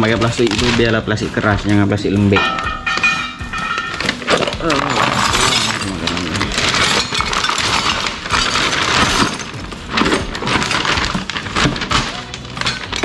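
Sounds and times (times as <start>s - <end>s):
plastic bag crinkling: 0.0s - 1.2s, 3.4s - 13.0s
metal parts clattering: 2.4s - 13.0s.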